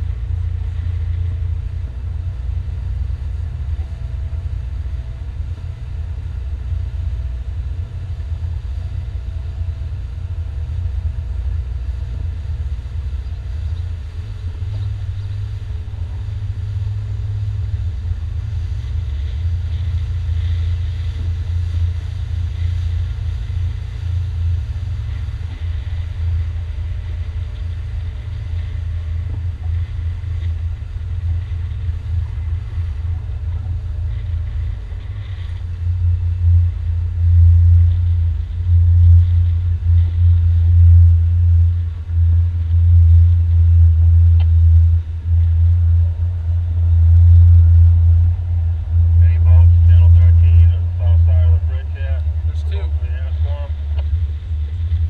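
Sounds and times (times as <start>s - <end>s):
faint steady whine: 0.0s - 55.0s
motorboat engine rumble: 0.0s - 55.0s.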